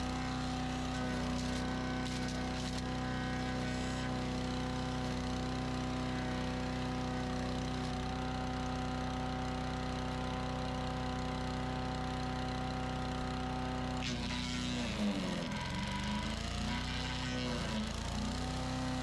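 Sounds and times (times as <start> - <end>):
wood chipper engine running: 0.0 - 19.0.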